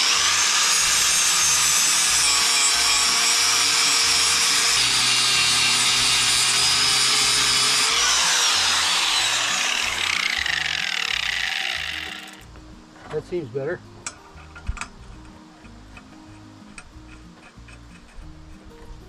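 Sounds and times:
angle grinder grinding metal: 0:00.0 - 0:12.5.

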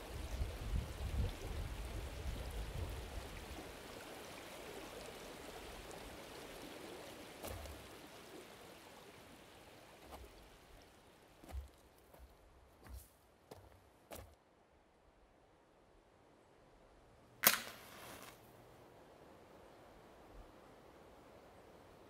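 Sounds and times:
running water: 0:00.0 - 0:14.3.

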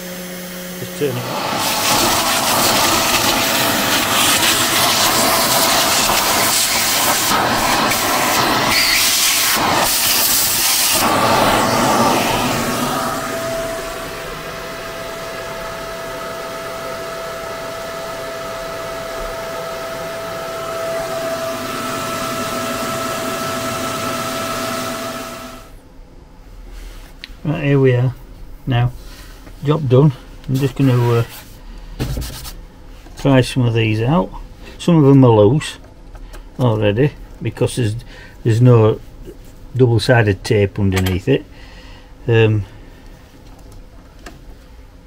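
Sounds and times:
shop vacuum running: 0:00.0 - 0:25.8, 0:27.6 - 0:35.8.

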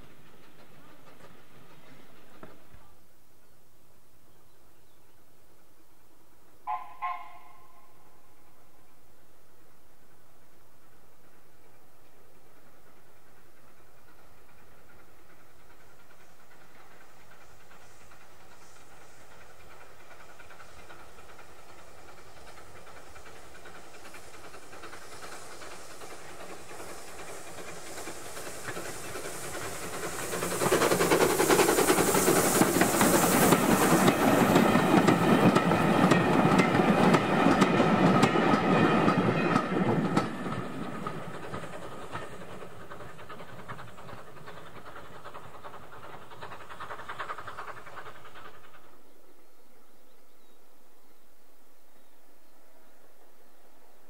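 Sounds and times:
train wheels clattering on rails: 0:00.0 - 0:02.9, 0:10.8 - 0:49.5
steam hiss: 0:00.0 - 0:03.5, 0:07.7 - 0:50.0.

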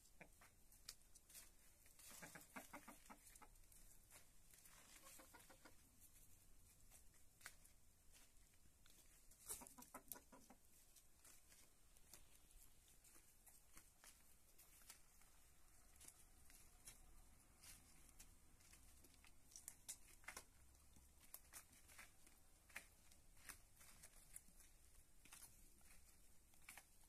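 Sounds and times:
hens clucking: 0:00.0 - 0:00.6, 0:01.4 - 0:06.2, 0:09.0 - 0:11.8.

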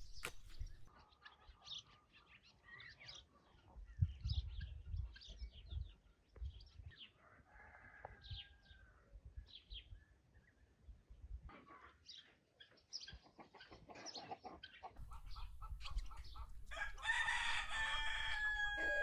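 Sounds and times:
small birds chirping: 0:00.0 - 0:07.0, 0:12.1 - 0:19.0.

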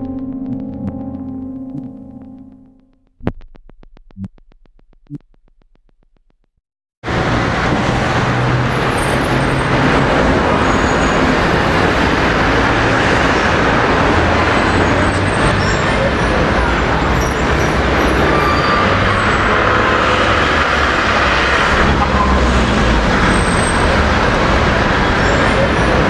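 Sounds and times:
musical drone: 0:00.0 - 0:03.2
low thumps: 0:00.0 - 0:06.6
rapid even ticks: 0:00.0 - 0:06.6
city street traffic: 0:07.0 - 0:26.0.

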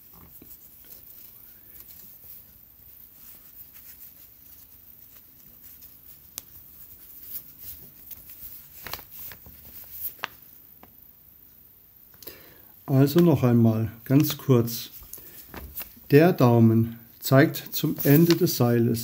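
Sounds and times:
rope rustling and scraping: 0:00.0 - 0:10.6, 0:14.1 - 0:16.1, 0:17.8 - 0:18.6.

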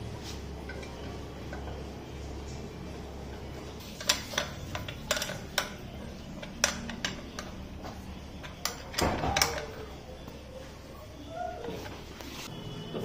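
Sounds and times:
metal clatter: 0:03.3 - 0:09.9
spanner clicking on metal: 0:03.9 - 0:09.9.

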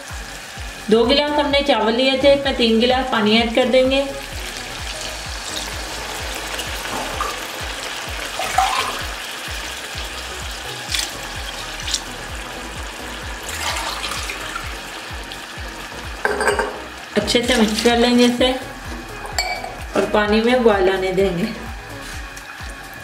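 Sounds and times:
water pouring into pan: 0:04.2 - 0:18.6.

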